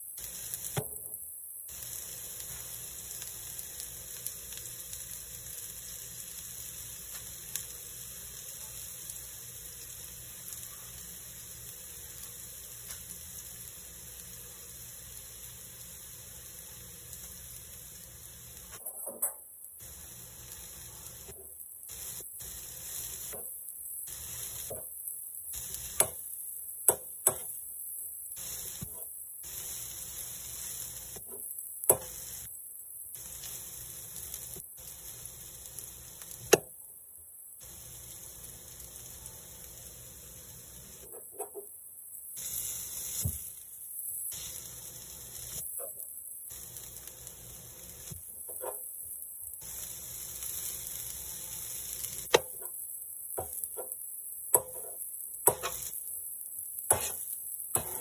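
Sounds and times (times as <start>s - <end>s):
vegetables sizzling on griddle: 0.0s - 58.0s
metal spatula clicking on griddle: 53.7s - 55.9s.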